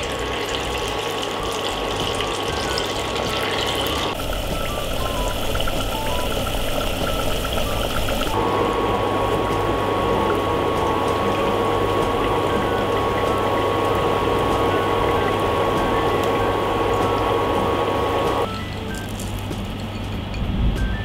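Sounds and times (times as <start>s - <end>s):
fritters sizzling in hot oil: 0.0s - 8.4s.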